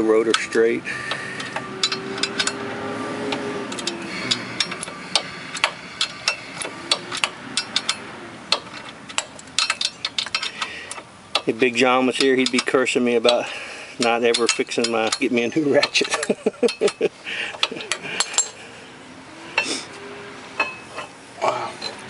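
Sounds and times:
ratchet wrench clicking: 0:00.3 - 0:02.6, 0:03.3 - 0:18.6.

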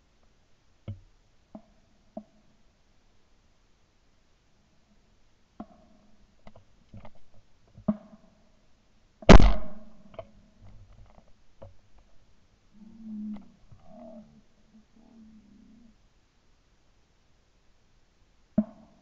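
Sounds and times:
shotgun shot: 0:09.3 - 0:09.9.

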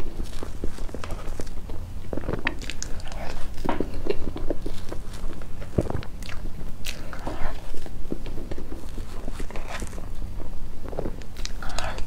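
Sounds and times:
steady low hum: 0:00.0 - 0:12.0
wet chewing and mouth clicks: 0:00.0 - 0:12.0.

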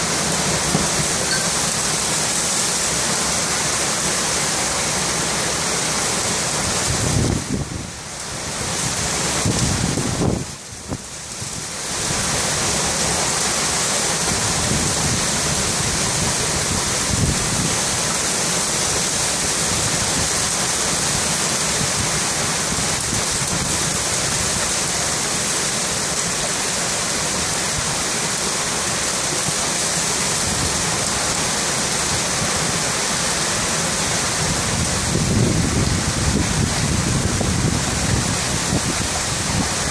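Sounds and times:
heavy rain pouring: 0:00.0 - 0:39.9.

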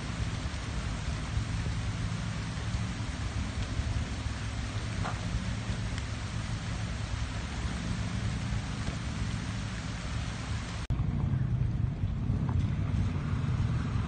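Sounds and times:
water running over rocks: 0:00.0 - 0:10.9
engines running low: 0:00.0 - 0:14.0
vehicle engine driving into pond: 0:00.0 - 0:14.0.

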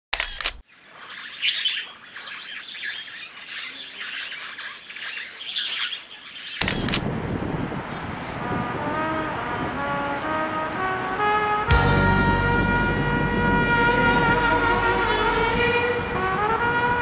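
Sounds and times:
small birds chirping: 0:00.2 - 0:07.0
low rushing noise: 0:06.6 - 0:17.0.

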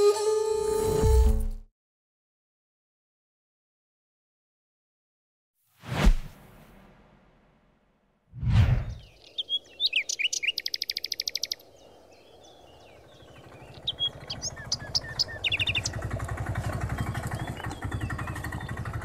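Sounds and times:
sudden swoosh: 0:05.8 - 0:07.4, 0:08.3 - 0:09.1
birds chirping: 0:08.7 - 0:19.0
bird trill: 0:09.0 - 0:16.1, 0:16.8 - 0:19.0
auto-rickshaw engine: 0:12.4 - 0:19.0.

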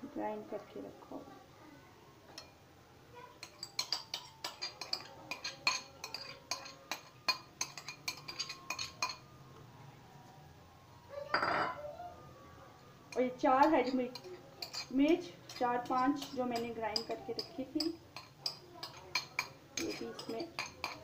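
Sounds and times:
spoon clinking against ceramic bowl: 0:03.4 - 0:09.2, 0:13.1 - 0:21.0.

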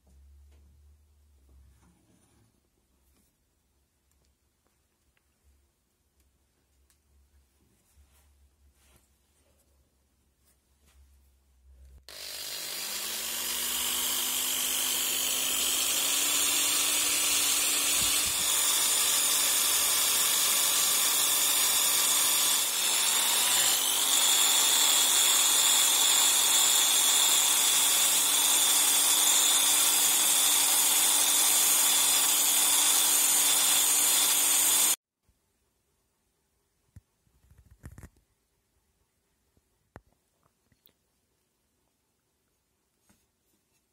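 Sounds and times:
electric drill motor: 0:12.1 - 0:35.0.

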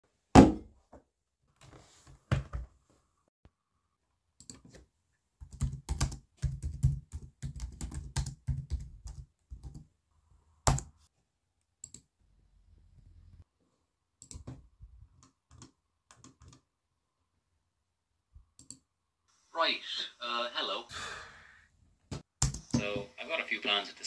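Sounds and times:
laptop keyboard typing: 0:05.4 - 0:09.9, 0:10.6 - 0:10.9, 0:15.2 - 0:16.6, 0:22.4 - 0:22.7.

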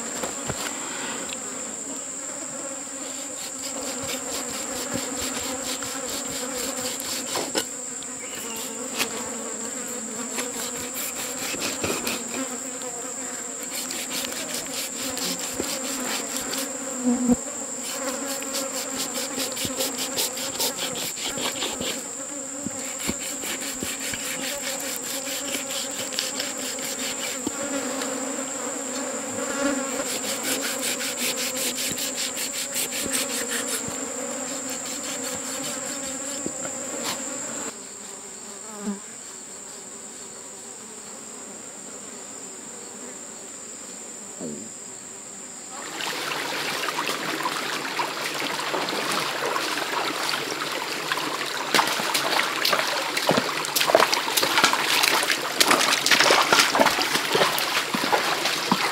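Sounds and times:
low insect buzz: 0:00.0 - 0:58.9
high-pitched insect drone: 0:03.0 - 0:37.7
knife scraping through fur: 0:03.1 - 0:07.8, 0:08.4 - 0:09.3, 0:09.9 - 0:12.6, 0:13.6 - 0:16.8, 0:17.8 - 0:22.1, 0:22.7 - 0:27.8, 0:29.8 - 0:37.3
stream water running: 0:03.2 - 0:09.2, 0:13.6 - 0:16.8, 0:17.8 - 0:28.2, 0:30.0 - 0:34.0, 0:45.8 - 0:58.9.

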